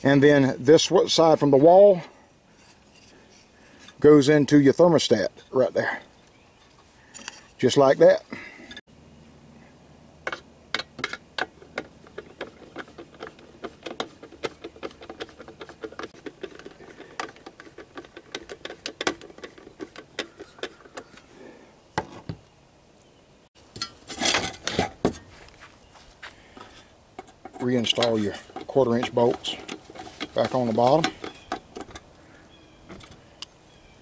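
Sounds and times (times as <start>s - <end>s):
sheet metal housing clinking: 23.6s - 25.3s, 26.6s - 32.1s.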